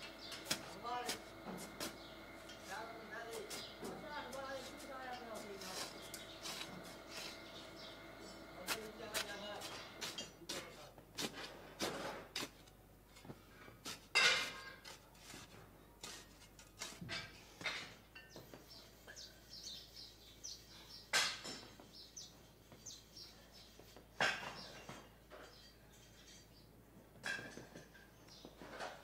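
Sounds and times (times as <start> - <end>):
metal spade scraping sand: 0.2 - 12.7.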